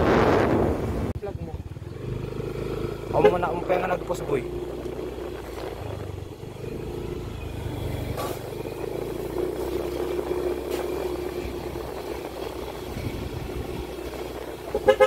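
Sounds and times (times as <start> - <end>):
motorcycle engine cruising: 0.0 - 15.0.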